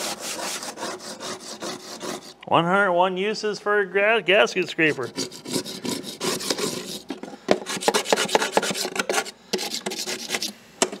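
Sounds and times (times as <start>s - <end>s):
scraper scraping foam off hood: 0.0s - 2.4s, 4.9s - 10.5s.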